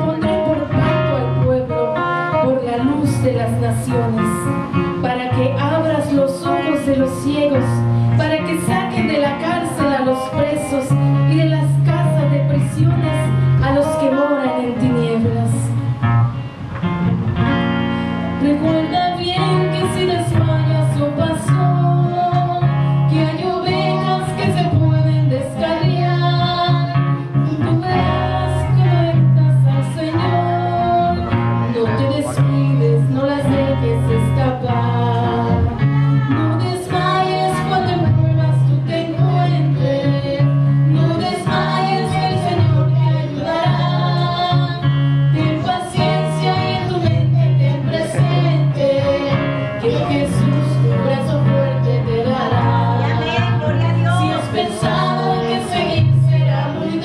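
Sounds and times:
woman singing into a microphone: 0.0 - 16.0, 18.3 - 57.0
strummed acoustic guitar: 0.0 - 57.0
low bass notes: 20.3 - 57.0.

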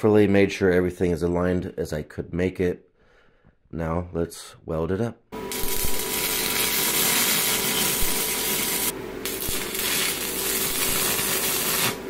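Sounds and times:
welding arc sizzling: 5.4 - 12.0.

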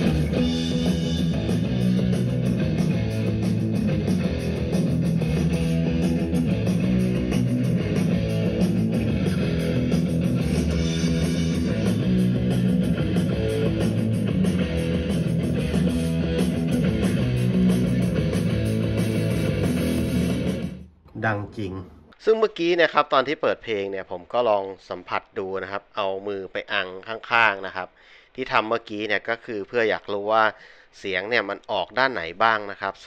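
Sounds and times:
rock music on small speaker: 0.0 - 20.9.

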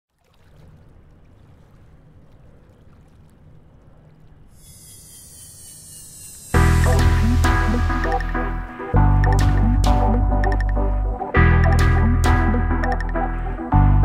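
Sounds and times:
high-pitched whine: 4.6 - 9.0
loud music with heavy bass: 6.6 - 14.0.

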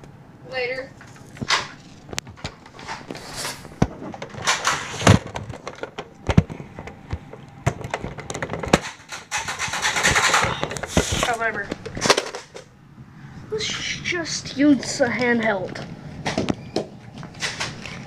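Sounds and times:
toy blaster clicks and knocks: 7.7 - 12.7.

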